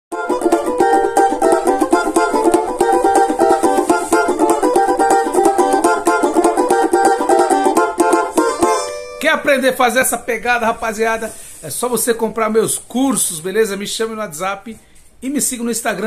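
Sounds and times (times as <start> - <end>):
banjo strummed samba rhythm: 0.1 - 9.9.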